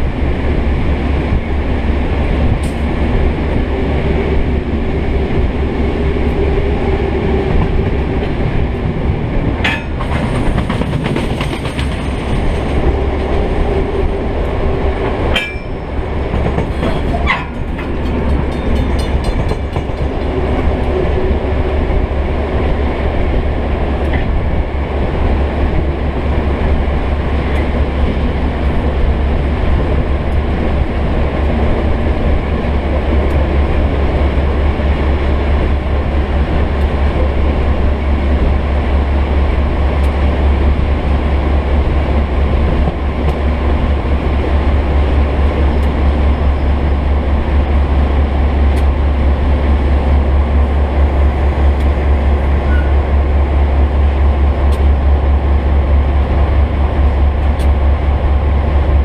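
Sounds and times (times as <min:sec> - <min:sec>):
diesel locomotive engine running: 0:00.0 - 0:59.0
wheel and rail noise: 0:00.0 - 0:59.0
sharp clicks and squeaks: 0:52.7 - 0:52.9.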